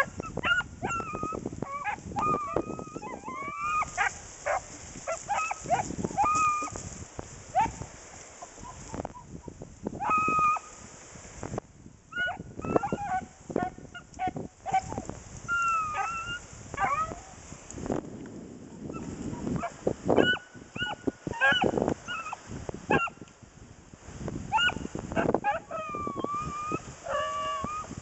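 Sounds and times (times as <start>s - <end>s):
dog yelping and bawling: 0.0s - 6.8s, 10.0s - 10.7s, 12.2s - 17.2s, 19.0s - 23.1s, 24.5s - 27.9s
dry brush crackling: 1.4s - 9.9s.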